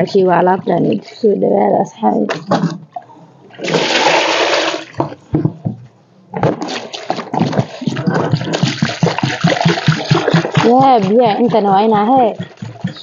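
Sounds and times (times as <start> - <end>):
water splashing from a basin: 2.3 - 5.1, 6.4 - 13.0
water pouring into a metal pot: 3.6 - 5.0.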